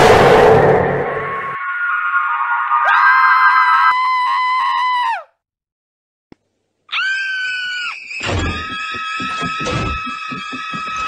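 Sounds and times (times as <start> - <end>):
loud thud: 0.0 - 1.6
high-pitched screams: 1.6 - 5.3, 6.9 - 11.0.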